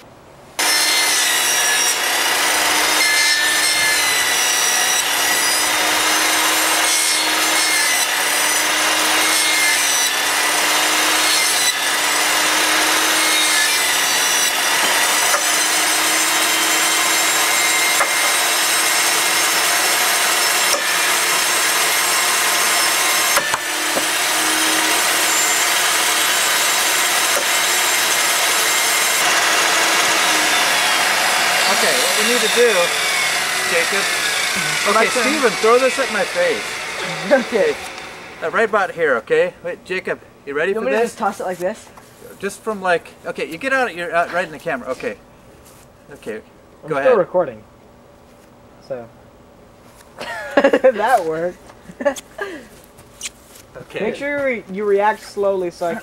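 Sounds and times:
table saw whine: 0.6s - 39.0s.

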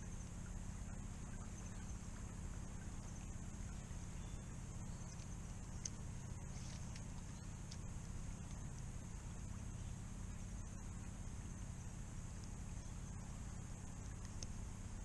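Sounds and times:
high-pitched insect chorus: 0.0s - 15.0s
faint clicks: 5.1s - 6.0s, 6.6s - 8.9s, 14.0s - 14.6s.

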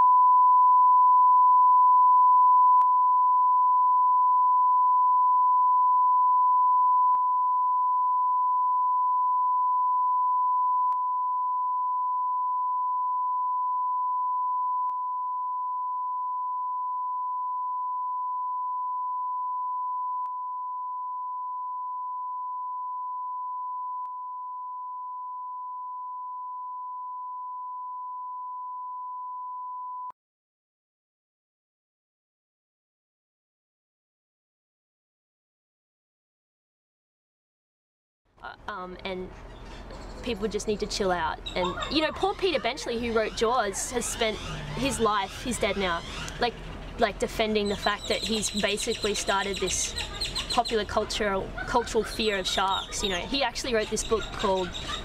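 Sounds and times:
sine test tone: 0.0s - 30.2s.

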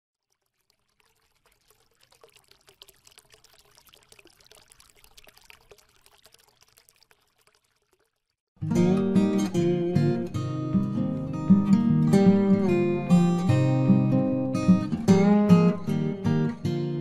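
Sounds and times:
small crackles: 0.1s - 8.5s
water trickling and pouring: 0.1s - 8.5s.

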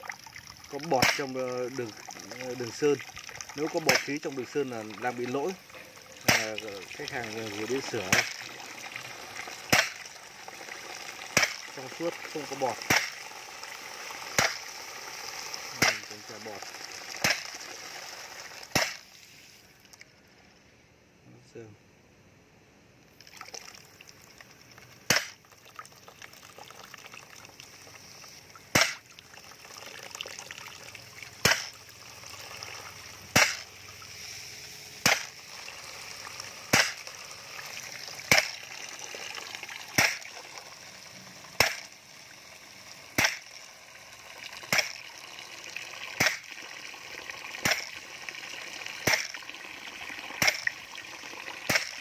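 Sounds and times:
liquid splashing into plastic bucket: 0.0s - 19.1s, 23.1s - 34.1s, 35.0s - 42.1s, 42.8s - 52.0s
diaphragm pump popping: 3.2s - 8.7s, 9.4s - 10.2s, 11.2s - 13.3s, 28.7s - 29.1s, 31.4s - 31.8s, 33.3s - 33.7s, 35.0s - 35.4s, 36.7s - 37.1s, 38.3s - 38.7s, 39.9s - 40.4s, 41.5s - 42.0s, 43.2s - 43.5s, 44.6s - 45.0s, 46.2s - 46.6s, 47.6s - 48.0s, 49.0s - 49.4s, 50.3s - 50.8s, 51.6s - 52.0s.

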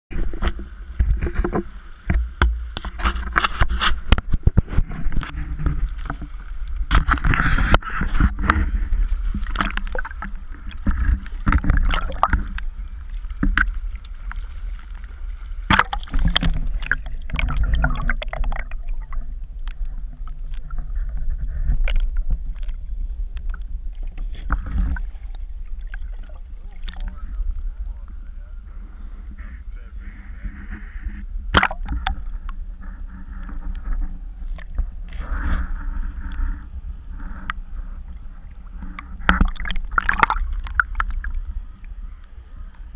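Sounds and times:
steady low rumble: 0.1s - 42.9s
sharp knocks and thumps: 0.2s - 6.3s, 6.9s - 12.6s
river water splashing: 0.2s - 20.9s, 24.2s - 28.0s, 31.5s - 32.3s, 34.4s - 42.9s.

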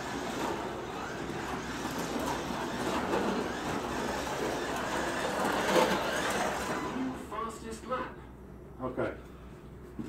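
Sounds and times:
slot car motor whirring: 0.0s - 7.5s.

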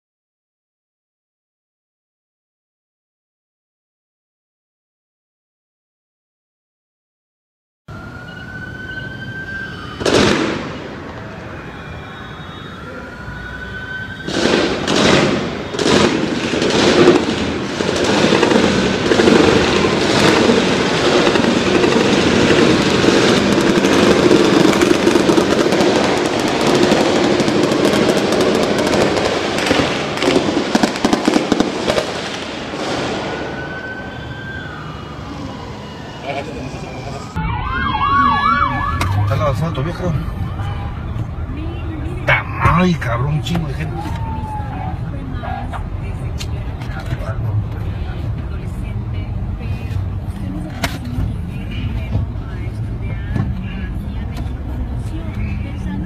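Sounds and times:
gunshots: 10.0s - 10.9s, 14.3s - 33.5s.

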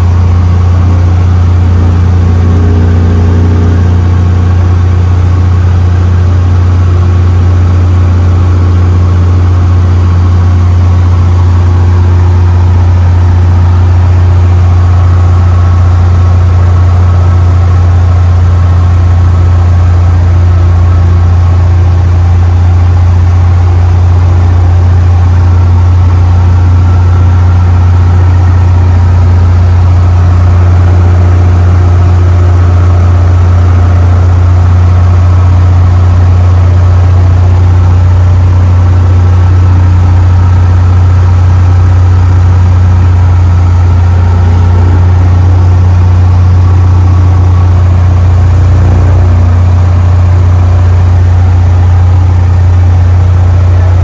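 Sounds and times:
light aircraft cockpit drone: 0.0s - 54.0s.

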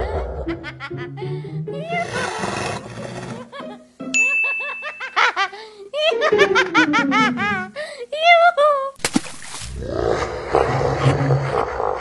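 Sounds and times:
cartoonish high-pitched giggling: 0.0s - 2.4s, 4.4s - 8.9s
music track: 0.5s - 2.3s, 3.4s - 8.0s
bell-like ding: 4.2s - 5.2s.

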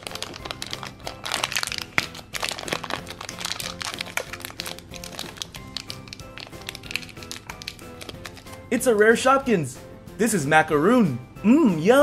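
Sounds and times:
plastic bag crinkling: 0.0s - 8.8s
background music with held notes: 0.0s - 12.0s.

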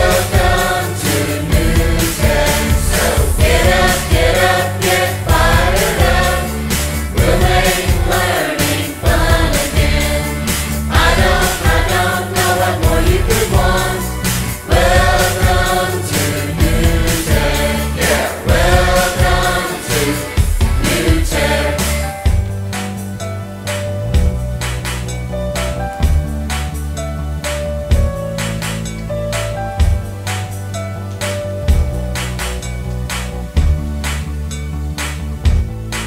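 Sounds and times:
song with sung vocals: 0.0s - 22.4s
heavy bass beat: 0.0s - 23.0s, 26.0s - 30.5s, 35.2s - 36.0s.

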